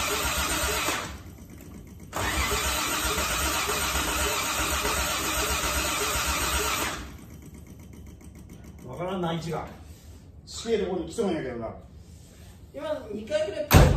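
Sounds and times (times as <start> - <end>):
car engine cranking on starter: 2.1 - 7.2.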